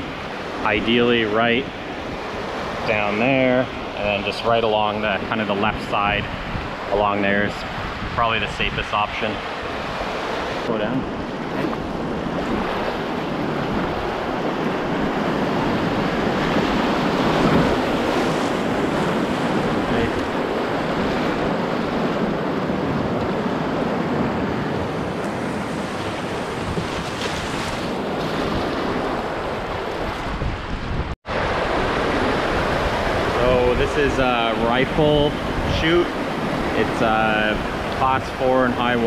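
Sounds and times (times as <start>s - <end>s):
waves breaking around hull: 0.0s - 39.0s
wind on microphone: 0.0s - 39.0s
roar of whitewater rapids: 15.6s - 21.5s, 31.3s - 39.0s.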